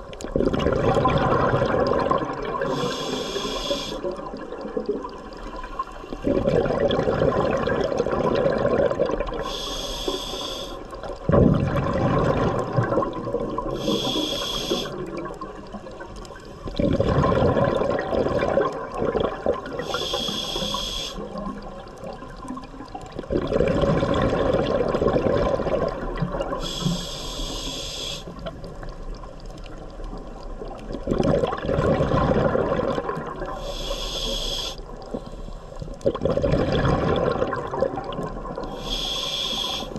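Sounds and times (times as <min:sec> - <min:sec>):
exhale bubbling underwater: 0:00.0 - 0:35.2, 0:35.8 - 0:39.9
regulator hiss: 0:02.7 - 0:04.1, 0:09.4 - 0:10.8, 0:13.7 - 0:15.0, 0:19.8 - 0:21.3, 0:26.6 - 0:28.3, 0:33.6 - 0:35.6, 0:38.7 - 0:39.9.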